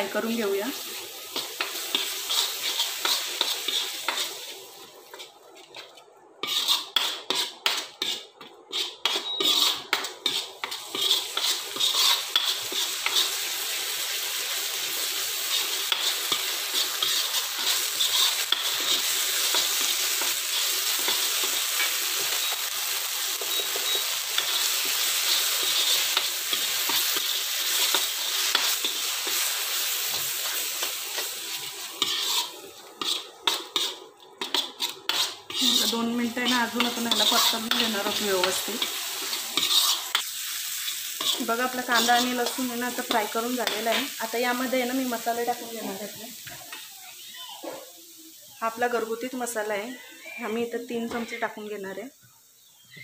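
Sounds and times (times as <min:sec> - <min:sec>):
onion sizzling in oil: 0:00.0 - 0:53.0
spoon scraping a metal pan: 0:01.7 - 0:04.4, 0:06.4 - 0:13.4, 0:15.5 - 0:22.6, 0:32.0 - 0:44.1.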